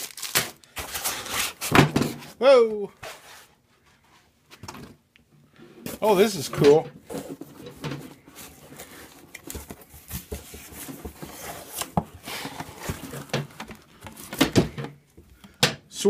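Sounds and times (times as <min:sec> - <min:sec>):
cardboard box rustling and knocking: 0:05.9 - 0:15.0.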